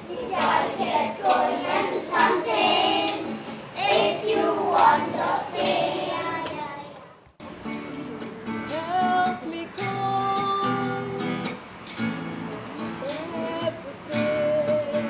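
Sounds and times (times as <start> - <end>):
acoustic guitar strumming: 0.0 - 6.5, 7.4 - 15.0
children singing: 0.0 - 7.0.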